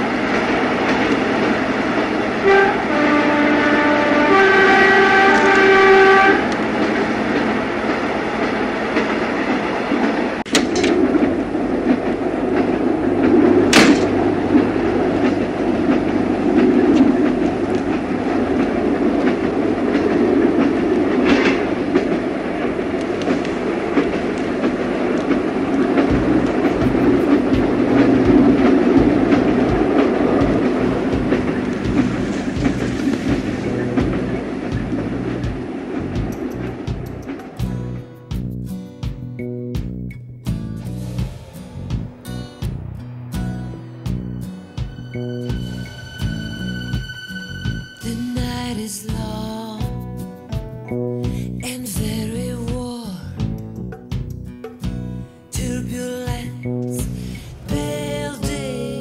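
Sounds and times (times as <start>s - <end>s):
train rumbling: 0.0s - 59.0s
held horn chord: 2.4s - 7.8s.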